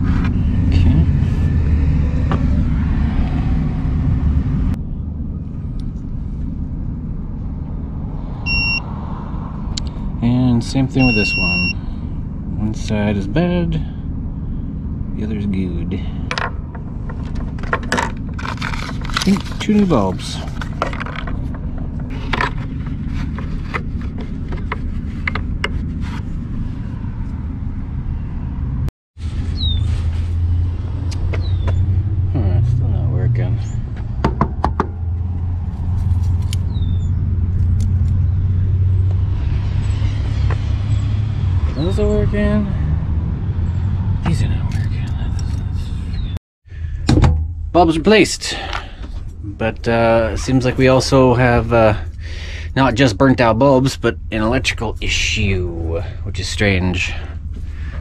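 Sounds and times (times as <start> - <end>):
vehicle engine idling: 9.6 - 28.3, 43.6 - 58.0.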